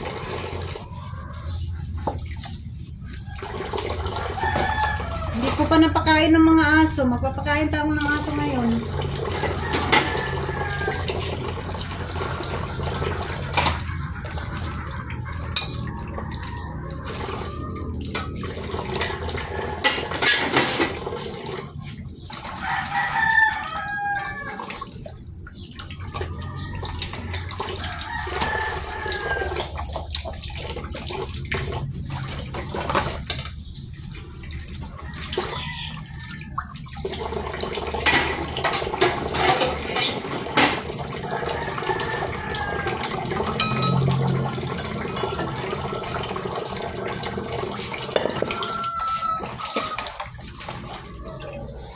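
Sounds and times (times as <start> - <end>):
tap water running into basin: 0.0 - 51.9
rooster crowing: 3.2 - 5.5, 9.4 - 11.4, 22.5 - 24.8, 26.4 - 29.8, 35.0 - 36.7, 41.1 - 51.8
dishes being handled: 19.8 - 21.0.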